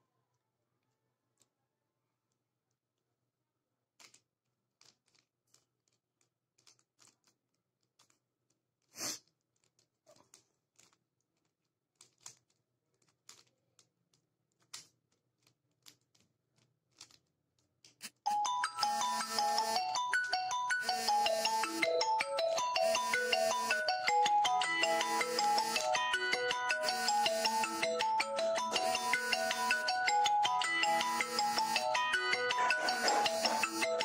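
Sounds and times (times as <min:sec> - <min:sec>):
puzzle cube clicking: 0:04.0 - 0:18.2
plinking music melody: 0:18.3 - 0:34.0.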